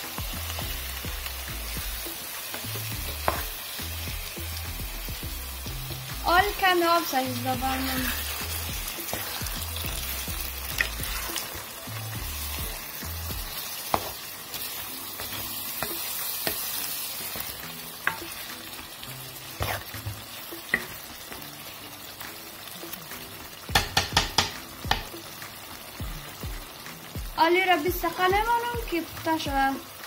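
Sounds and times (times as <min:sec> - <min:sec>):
food sizzling in a pot: 0:00.0 - 0:30.0
wooden spoon stirring: 0:19.5 - 0:20.2.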